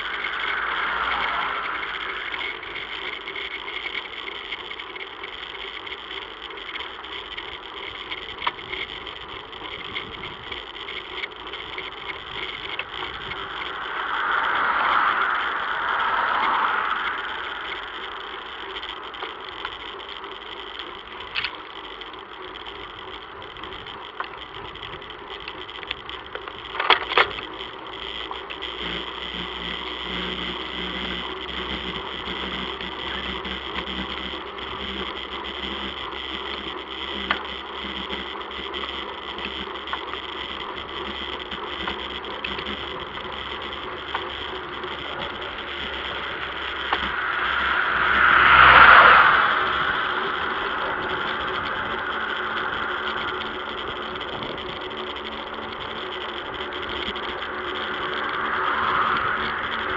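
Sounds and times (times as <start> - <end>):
bicycle tyres on asphalt: 0.0 - 59.9
bike rattles and clicks: 0.0 - 59.9.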